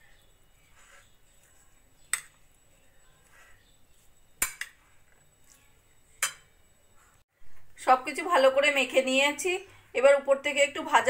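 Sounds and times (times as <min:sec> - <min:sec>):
spoon clinking against plate: 0:06.2 - 0:06.5.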